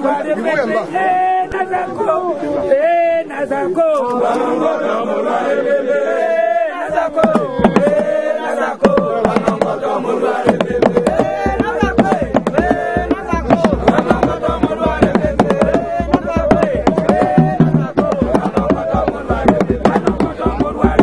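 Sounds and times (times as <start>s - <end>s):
men chanting together: 0.0s - 21.0s
deep drum beats: 7.0s - 21.0s
sharp percussive strikes: 10.4s - 21.0s.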